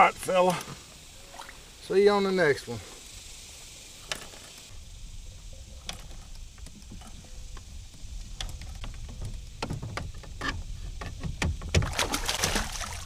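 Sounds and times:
small clicks and knocks: 5.8s - 11.9s
water lapping against kayak: 5.8s - 13.0s.

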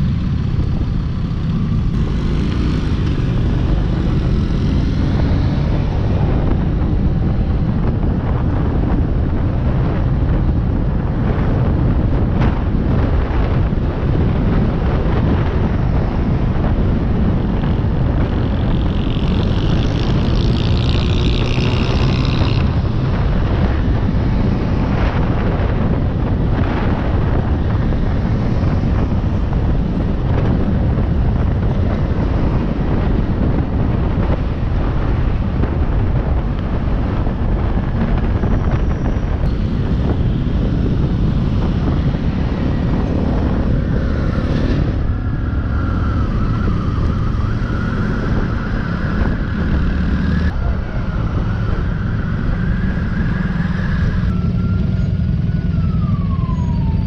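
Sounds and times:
wind rushing over microphone: 0.0s - 57.0s
motorcycle engine running: 16.8s - 48.2s.

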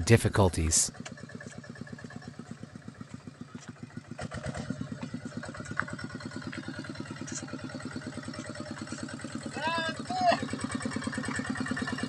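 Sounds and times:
diesel engine chugging: 0.0s - 12.0s.

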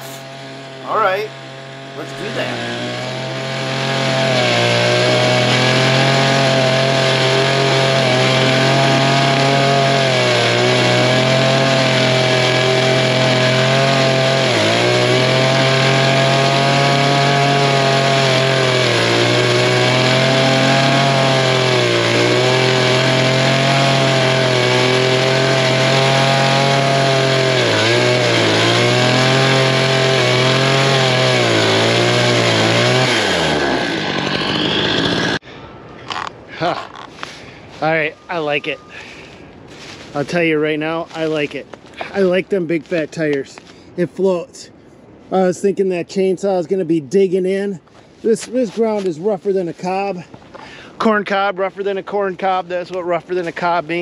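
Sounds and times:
brush cutter engine running: 0.0s - 35.4s
chain cutting through reeds: 0.0s - 35.4s.

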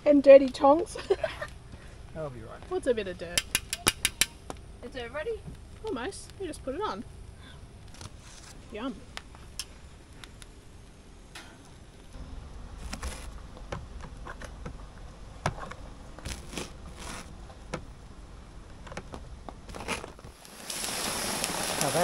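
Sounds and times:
campfire crackling: 0.0s - 22.0s
fire pops and clicks: 2.6s - 4.8s, 5.4s - 22.0s
low rumble: 4.6s - 20.3s.

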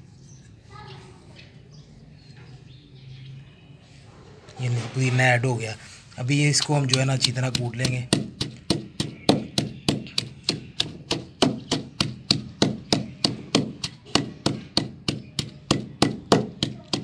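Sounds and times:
pestle pounding in stone mortar: 6.8s - 17.0s.

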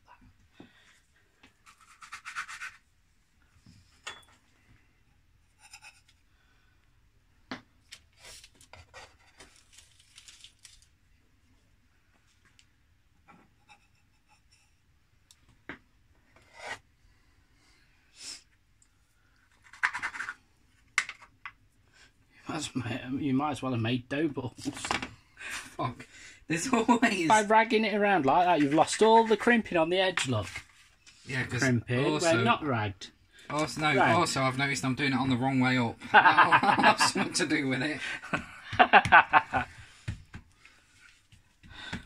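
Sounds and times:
dough scraping and rubbing: 1.6s - 2.9s, 16.3s - 16.8s, 19.6s - 20.5s.

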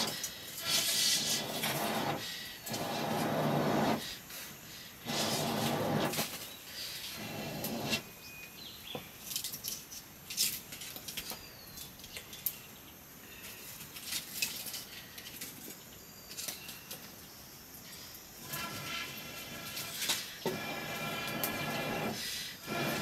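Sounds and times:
wood fire crackling: 0.0s - 8.1s, 18.4s - 23.0s.

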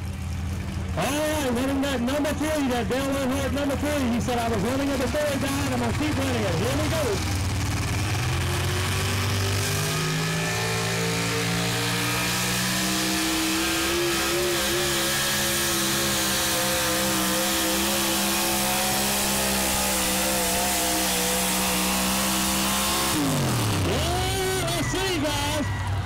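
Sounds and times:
truck engine at full throttle: 0.0s - 26.0s.

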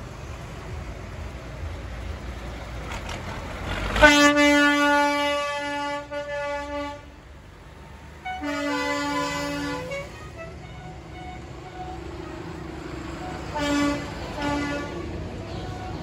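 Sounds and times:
tractor engines rumbling: 0.0s - 16.0s
tractor horn blast: 3.9s - 7.1s, 8.2s - 12.0s, 13.4s - 15.2s.

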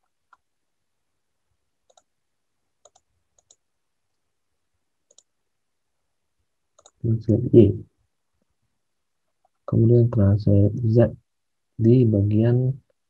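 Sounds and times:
faint computer mouse clicks: 1.9s - 2.1s, 2.8s - 3.6s, 5.1s - 5.3s, 6.8s - 7.0s.

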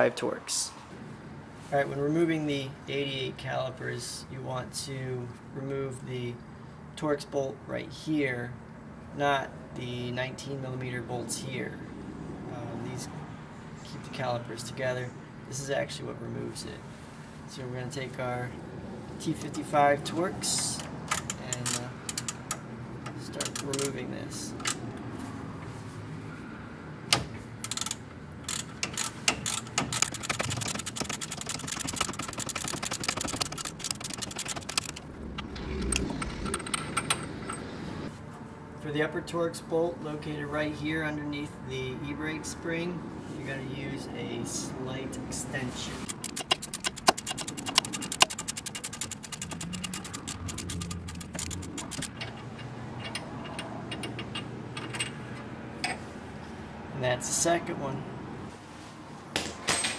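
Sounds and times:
hand ratchet clicking: 20.7s - 22.6s, 23.4s - 23.9s, 27.6s - 35.1s, 46.0s - 55.1s.

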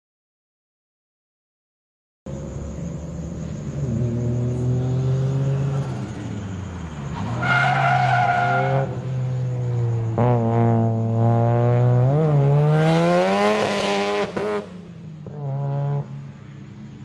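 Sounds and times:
car engine revving: 2.3s - 16.3s
tyres squealing: 7.2s - 8.9s.

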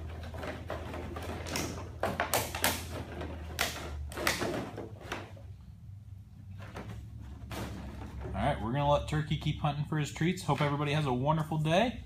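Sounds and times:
plastic bottles clattering: 0.0s - 5.5s, 6.5s - 8.8s.

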